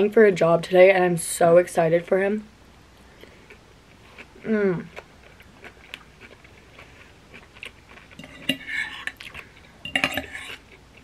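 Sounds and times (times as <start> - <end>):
fork scraping a plate: 8.2 - 9.2, 9.8 - 10.8.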